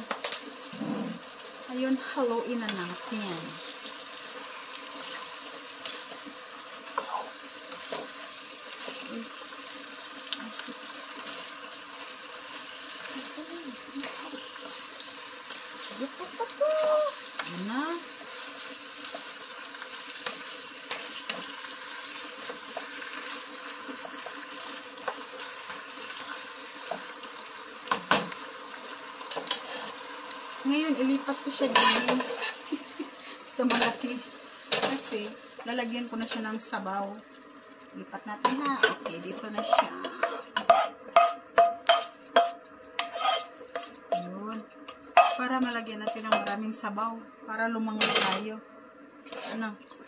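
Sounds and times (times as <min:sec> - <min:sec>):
chicken sizzling in frying pan: 0:00.0 - 0:47.1
spatula scraping a pan: 0:04.3 - 0:09.1, 0:18.2 - 0:27.2, 0:29.2 - 0:30.1, 0:31.6 - 0:32.7, 0:38.4 - 0:46.6, 0:49.2 - 0:49.8.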